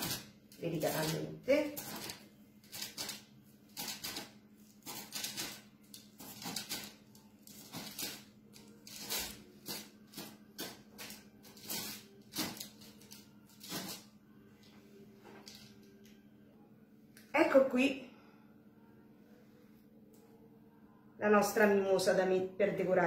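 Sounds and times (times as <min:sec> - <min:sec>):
bread knife sawing through cake: 0:06.2 - 0:06.9.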